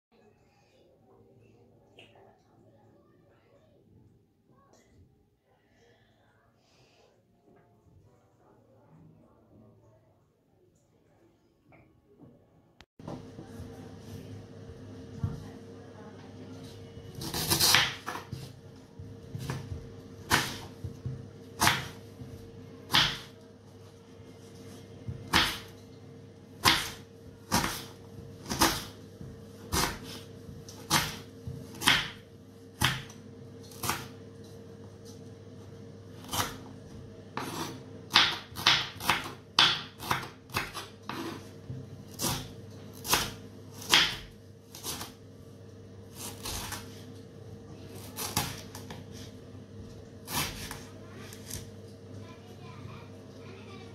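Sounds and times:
steady hum: 13.0 - 53.9
knife chopping on wooden board: 17.1 - 18.6, 19.3 - 23.3, 25.1 - 25.7, 26.6 - 32.2, 32.8 - 34.2, 37.4 - 45.2.

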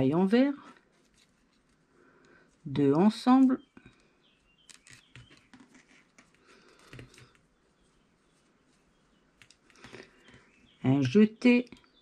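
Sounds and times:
knitting needles clicking: 9.4 - 11.9.

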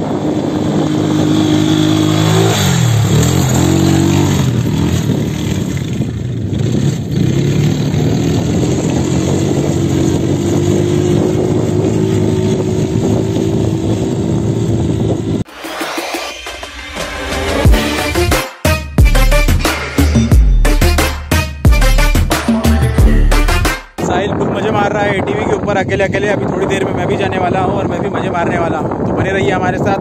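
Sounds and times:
quad bike engine running: 0.0 - 15.4.

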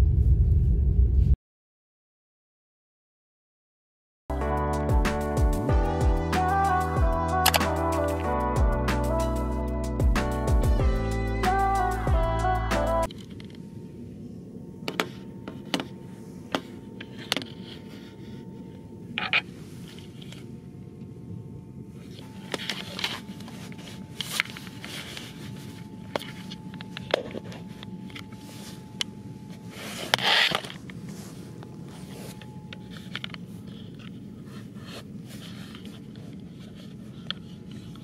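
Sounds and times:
clicks and scrapes of handling: 14.9 - 20.5, 22.0 - 38.0.

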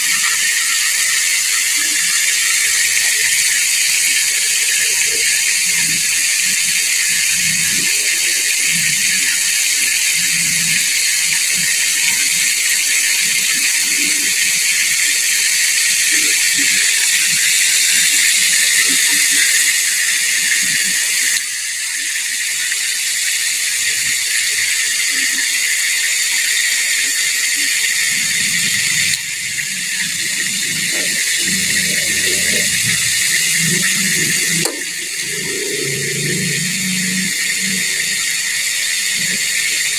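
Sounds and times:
hot oil sizzling: 0.0 - 39.9.

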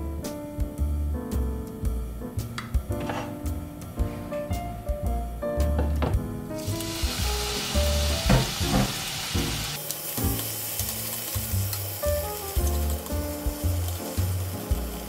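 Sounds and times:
food sizzling in frying pan: 6.6 - 15.0.

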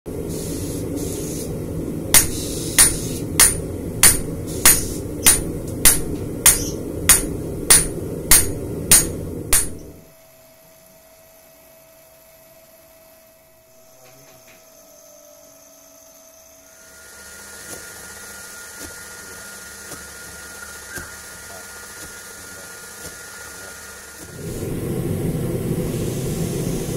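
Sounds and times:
coal forge roaring: 0.1 - 10.2, 16.6 - 26.9
hammer blows on anvil: 2.1 - 10.0.

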